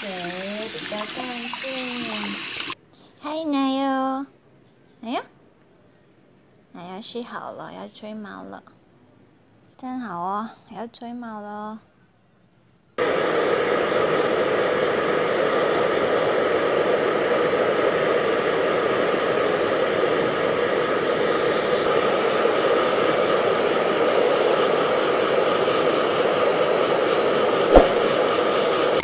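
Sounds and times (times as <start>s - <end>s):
hair dryer blowing: 0.0s - 2.8s, 13.0s - 28.8s.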